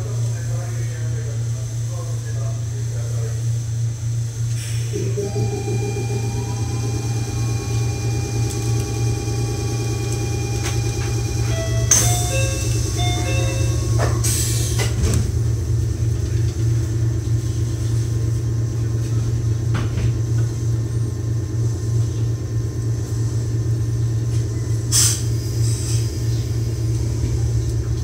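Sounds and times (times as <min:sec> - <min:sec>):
train machinery hum: 0:00.0 - 0:28.0
train door closing with thud: 0:09.9 - 0:15.6, 0:19.1 - 0:20.6
air hiss: 0:24.9 - 0:26.3.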